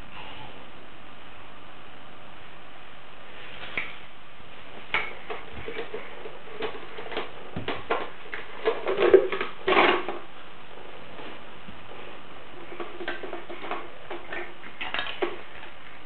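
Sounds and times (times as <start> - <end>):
plastic toys clattering: 5.2 - 10.2, 12.6 - 15.5.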